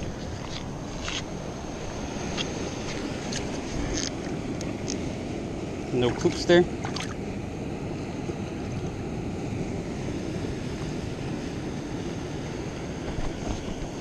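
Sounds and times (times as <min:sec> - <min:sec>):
wind noise on microphone: 0:00.0 - 0:14.0.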